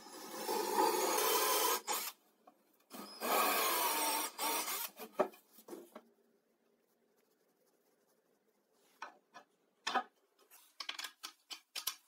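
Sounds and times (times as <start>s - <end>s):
cordless drill boring into chipboard: 0.1s - 2.2s, 2.9s - 5.0s
sharp clicks and knocks: 10.8s - 12.0s.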